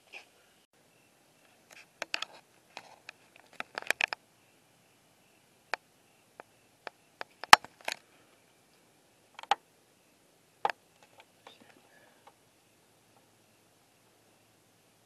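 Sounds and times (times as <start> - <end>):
sharp clicks and snaps: 1.7 - 4.2, 6.4 - 8.0, 9.4 - 9.6.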